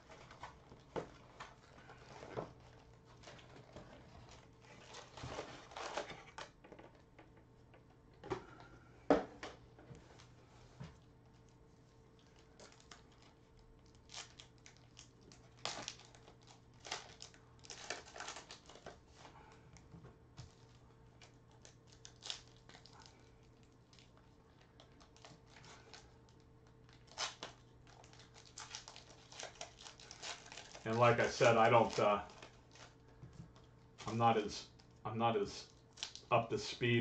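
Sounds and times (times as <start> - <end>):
foil packs crinkling: 0.0 - 6.6, 12.1 - 19.6, 20.4 - 35.0, 35.6 - 36.3
steady low hum: 0.0 - 37.0.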